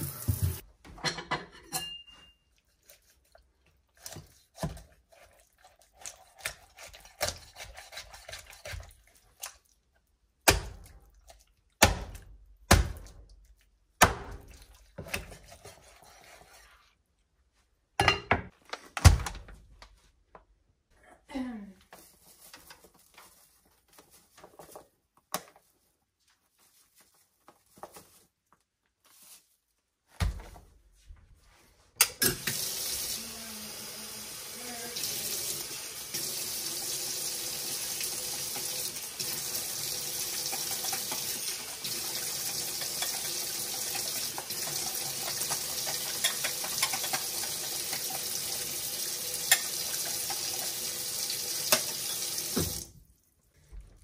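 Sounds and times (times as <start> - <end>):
faucet running into sink: 0.0 - 0.6, 32.3 - 33.2, 34.2 - 52.9
soft rustles and taps: 21.9 - 29.4.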